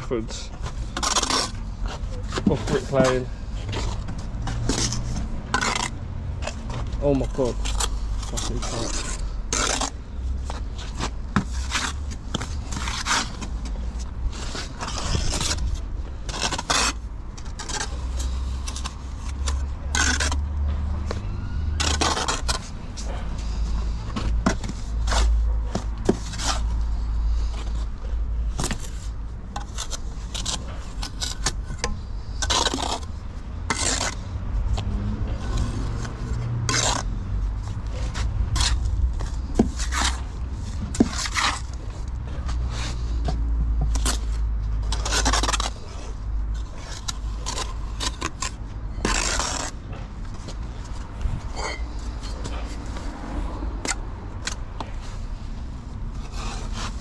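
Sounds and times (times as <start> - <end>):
trowel scraping on mortar: 0.2 - 27.9, 28.6 - 34.3, 35.3 - 55.5, 56.1 - 57.0
steady low rumble: 45.8 - 56.5.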